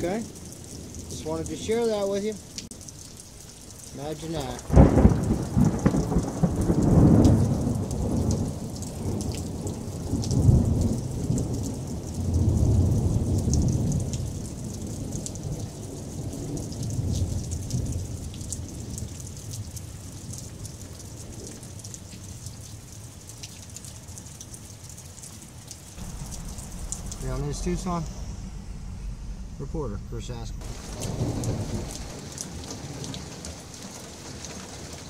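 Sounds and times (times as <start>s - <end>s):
heavy rain: 0.0s - 35.0s
low rumbles: 25.9s - 32.7s.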